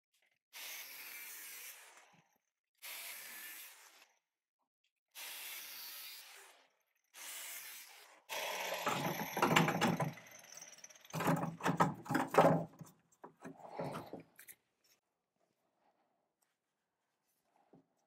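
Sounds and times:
knocking and clunking: 8.9s - 10.2s, 11.2s - 14.2s.

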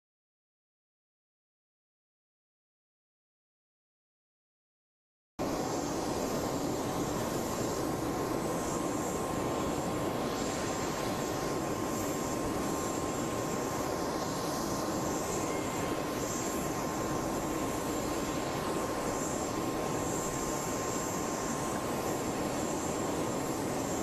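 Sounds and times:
aircraft turbine engine whine: 5.4s - 24.0s.

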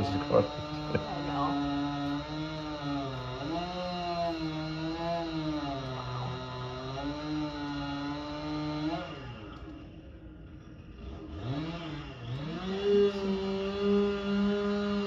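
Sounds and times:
pole saw engine revving: 0.0s - 9.9s, 11.0s - 15.0s.

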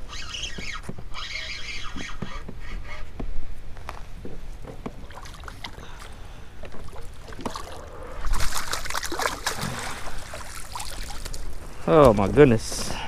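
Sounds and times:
landing net scooping water: 4.8s - 12.0s
fish thrashing in water: 4.9s - 11.8s.

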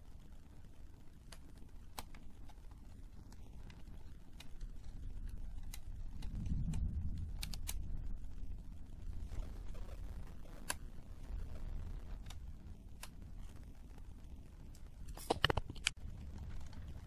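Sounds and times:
low rumble: 3.3s - 15.1s, 15.9s - 17.0s.

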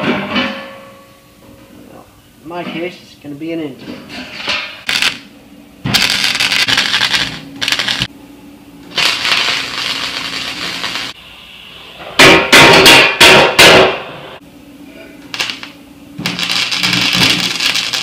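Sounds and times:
welder arc crackling: 4.8s - 5.3s, 5.9s - 8.1s, 8.8s - 11.2s, 15.3s - 18.0s.

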